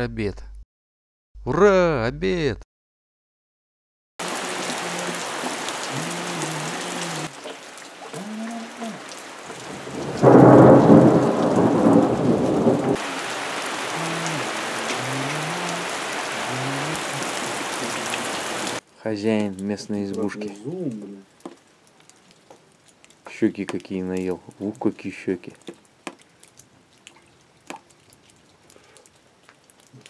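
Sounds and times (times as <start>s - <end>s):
steady rain falling: 4.2s - 30.0s
thunder rumble: 9.5s - 15.2s.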